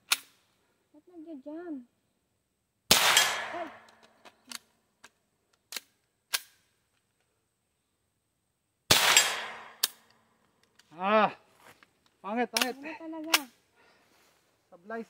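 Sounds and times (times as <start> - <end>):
gunshots: 2.9 - 4.0, 8.9 - 10.0
gun handling clicks: 3.8 - 7.1, 9.8 - 10.9, 12.0 - 13.6.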